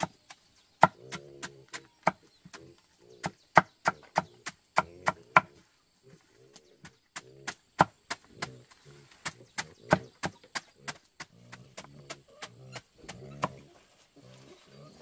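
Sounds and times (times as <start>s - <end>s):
knife chopping plant stem: 9.2s - 13.6s.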